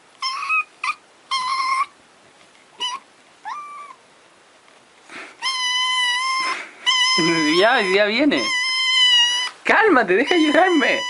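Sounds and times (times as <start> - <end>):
cat meowing: 0.2 - 1.9, 2.8 - 4.0, 5.4 - 9.6, 10.2 - 11.0.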